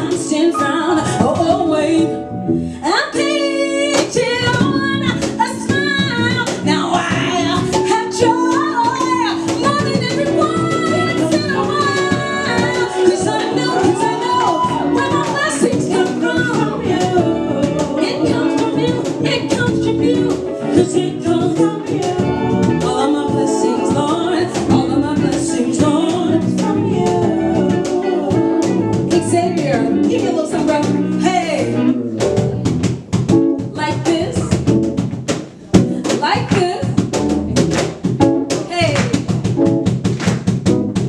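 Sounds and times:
woman singing lead vocal: 0.0s - 31.9s, 33.8s - 34.6s, 35.8s - 37.1s
electric guitar: 0.0s - 36.2s
backing singer: 2.8s - 32.8s.

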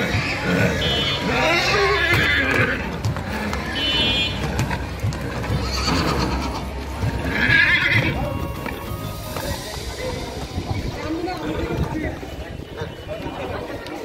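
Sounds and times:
horse whinnying: 0.0s - 3.5s, 5.2s - 8.3s
hooves thudding: 0.0s - 12.4s.

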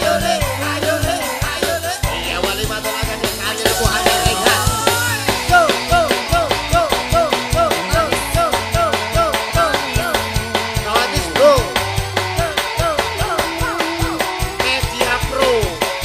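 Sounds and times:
drum kit beat: 0.0s - 16.0s
electric guitar: 0.0s - 16.0s
electronic keyboard: 0.0s - 16.0s.

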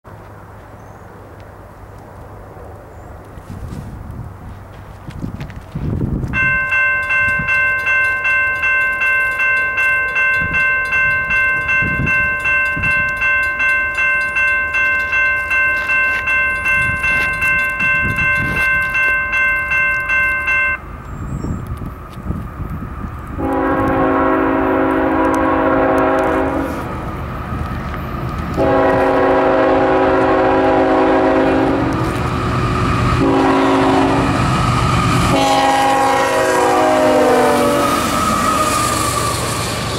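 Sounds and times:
train rumble: 0.1s - 39.9s
electronic crossing bell ringing: 6.4s - 20.9s
locomotive air horn blasts: 23.4s - 26.9s, 28.6s - 32.2s, 33.2s - 34.4s, 35.2s - 38.8s.

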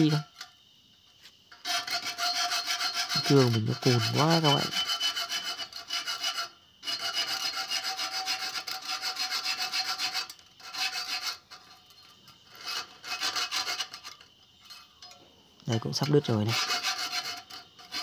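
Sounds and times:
hacksaw sawing through steel pipe: 1.6s - 11.7s, 12.5s - 14.1s, 16.1s - 18.0s.

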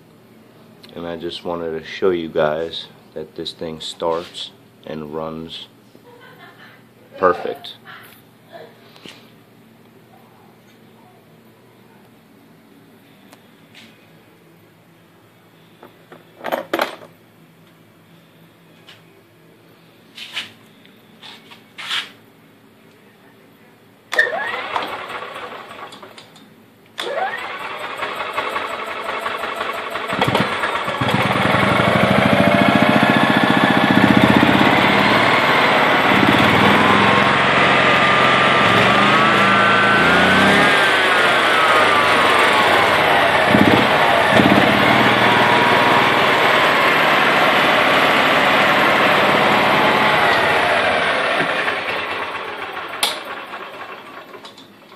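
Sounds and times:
starter whining: 24.1s - 26.2s, 27.0s - 54.7s
small engine running: 24.2s - 26.1s, 27.0s - 54.6s.

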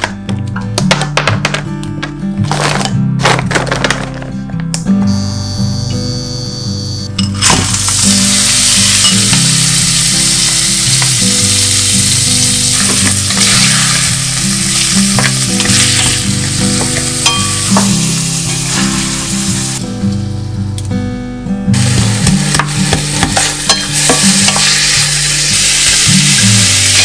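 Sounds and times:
vegetables sizzling in oil: 7.4s - 19.8s, 21.7s - 27.0s.

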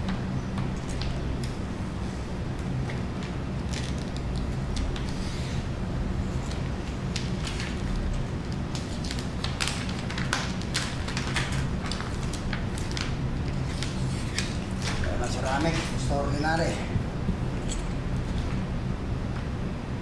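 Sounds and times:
crackles of plastic film handled: 2.8s - 5.6s, 6.4s - 16.8s.

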